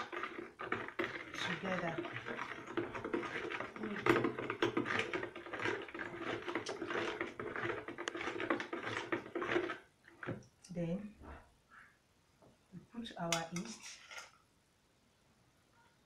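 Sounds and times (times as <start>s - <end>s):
stirring in plastic bucket: 0.0s - 10.8s, 13.6s - 14.4s.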